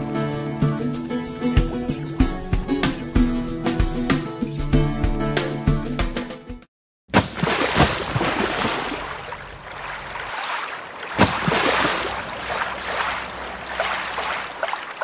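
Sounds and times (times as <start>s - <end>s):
rushing splashing water: 7.2s - 15.0s.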